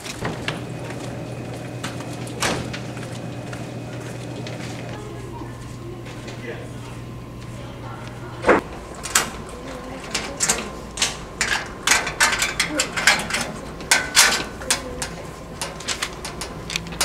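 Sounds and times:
metal locker door opening: 0:01.8 - 0:03.0.

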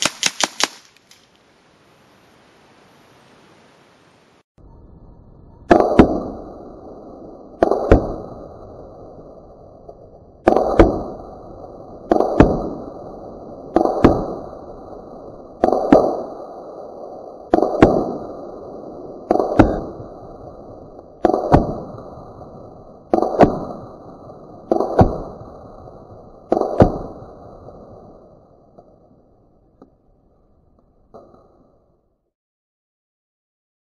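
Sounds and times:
air rifle shots: 0:00.0 - 0:01.1, 0:05.7 - 0:06.5, 0:07.6 - 0:08.5, 0:10.4 - 0:11.3, 0:12.0 - 0:14.6, 0:15.6 - 0:16.6, 0:17.5 - 0:18.5, 0:19.2 - 0:20.1, 0:21.0 - 0:22.1, 0:23.1 - 0:25.6, 0:26.4 - 0:27.4.

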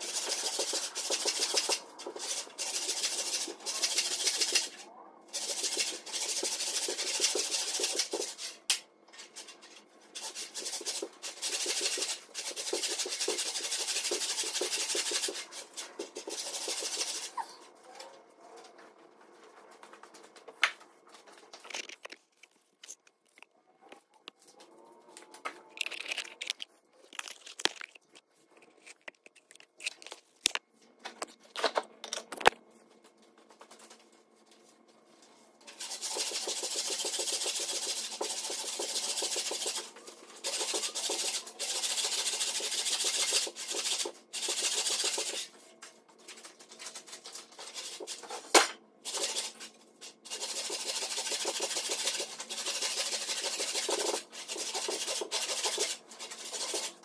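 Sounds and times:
hand saw rasping through log: 0:50.3 - 0:56.9.

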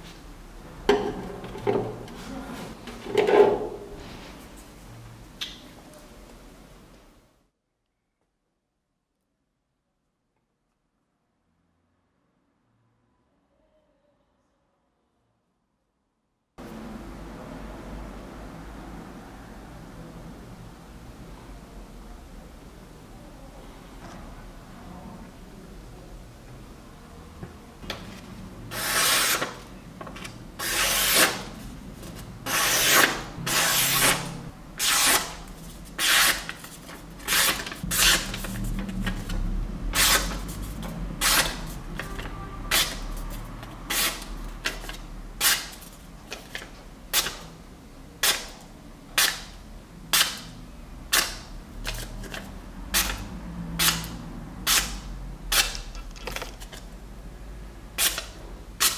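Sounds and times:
cleaver slicing paper: 0:28.7 - 0:29.6, 0:30.6 - 0:39.3, 0:39.9 - 0:46.6, 0:54.7 - 0:55.9, 0:58.0 - 0:58.9.

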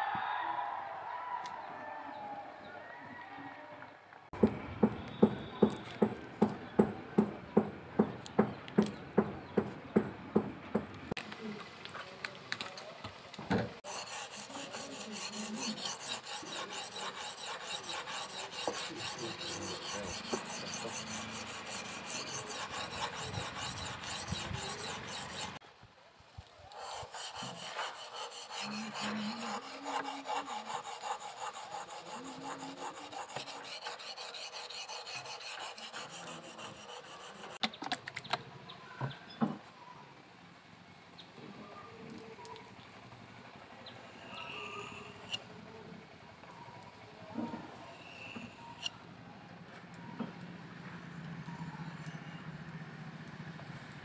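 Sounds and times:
knife scraping on whetstone: 0:13.8 - 0:25.6, 0:26.7 - 0:37.6, 0:44.2 - 0:45.4, 0:47.8 - 0:49.0, 0:51.3 - 0:52.4.

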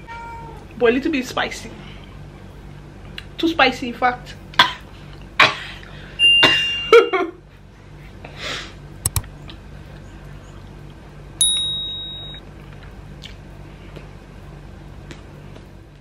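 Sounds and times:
ringing ding: 0:11.4 - 0:12.4.

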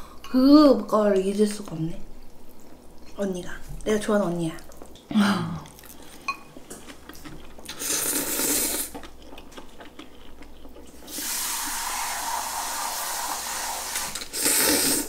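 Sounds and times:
slurping noodles: 0:07.7 - 0:09.0, 0:11.1 - 0:15.0.

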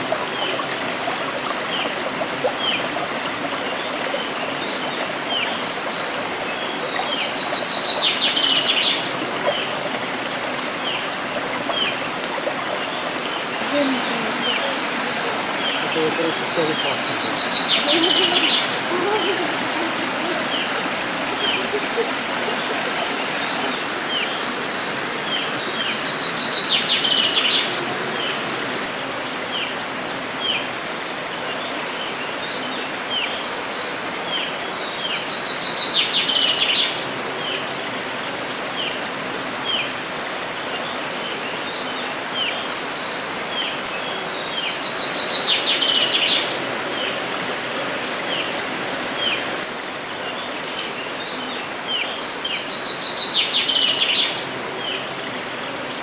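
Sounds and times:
forest stream running: 0:00.0 - 0:56.0
songbirds singing: 0:00.3 - 0:56.0
high buzzy bird phrase: 0:13.6 - 0:23.8.

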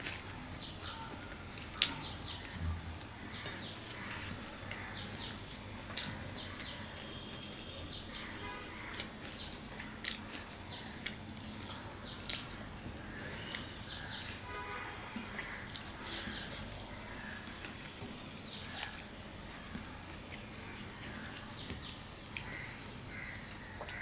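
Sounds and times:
birds chirping: 0:00.6 - 0:24.0
man chewing with wet mouth smacks: 0:15.2 - 0:17.8.

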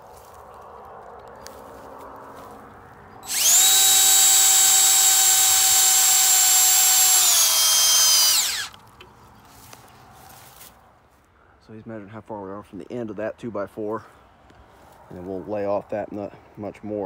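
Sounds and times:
cordless drill driving screw: 0:03.2 - 0:08.8.

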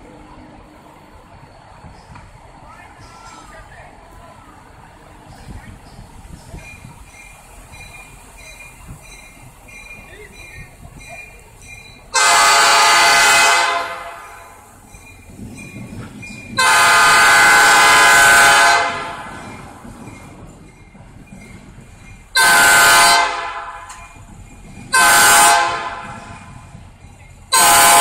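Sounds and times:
faint crossing bell ringing: 0:06.6 - 0:12.2, 0:14.2 - 0:16.6
locomotive air horn blasts: 0:12.1 - 0:14.6, 0:16.6 - 0:19.4, 0:22.4 - 0:23.9, 0:24.9 - 0:26.4, 0:27.5 - 0:28.0.

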